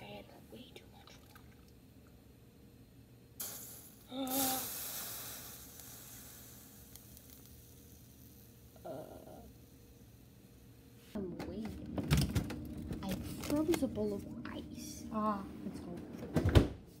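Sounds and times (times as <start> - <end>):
water sizzling on hot saucepan: 3.4 - 10.6.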